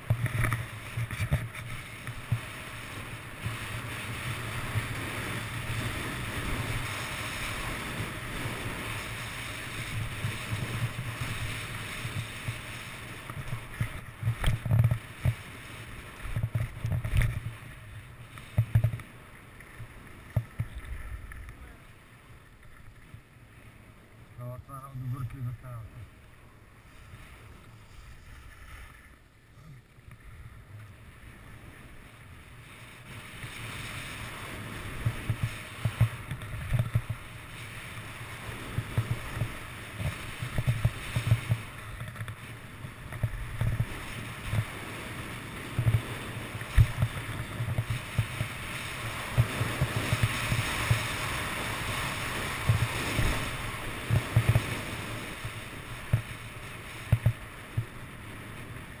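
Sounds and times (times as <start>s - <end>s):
wind buffeting microphone: 0.0s - 19.0s, 31.3s - 59.0s
skis scraping over snow: 0.0s - 59.0s.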